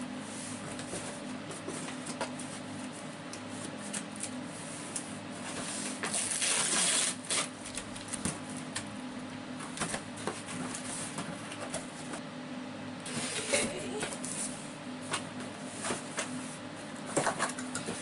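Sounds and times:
cardboard and tape rustling: 3.4 - 8.8
tape or cardboard being torn: 6.0 - 7.6.

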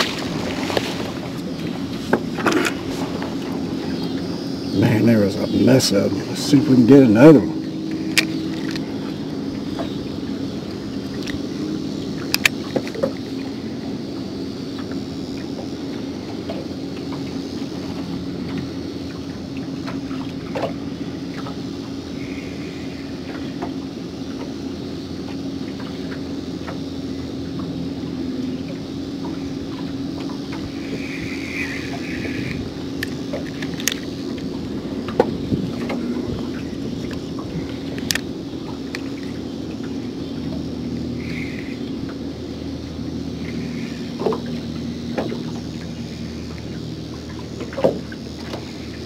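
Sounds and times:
electric trolling motor humming: 0.0 - 49.0
sharp clicks: 37.8 - 38.3.

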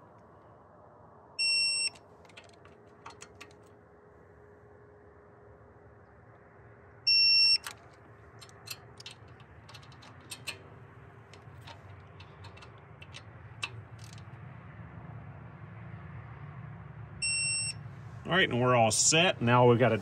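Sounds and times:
torque wrench beep: 1.4 - 2.0, 7.1 - 7.8, 17.2 - 17.8
wrench and socket clicks: 1.9 - 3.6, 7.6 - 7.8, 8.4 - 10.6, 11.4 - 14.2.

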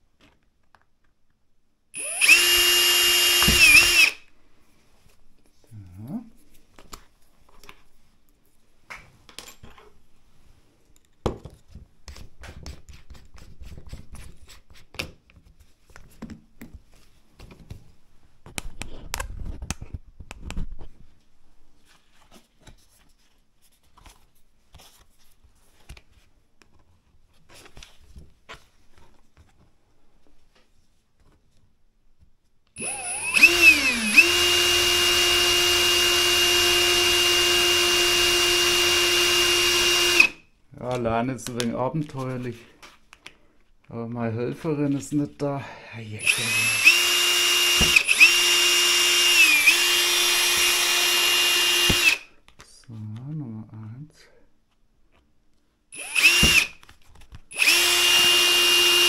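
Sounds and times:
power tool motor running: 2.0 - 4.2, 32.8 - 40.4, 46.2 - 52.2, 56.0 - 56.7, 57.5 - 59.0.

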